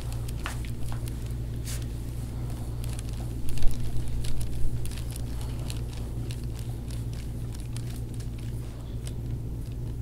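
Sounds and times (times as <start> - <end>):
faint crackles and clicks: 0.0 - 10.0.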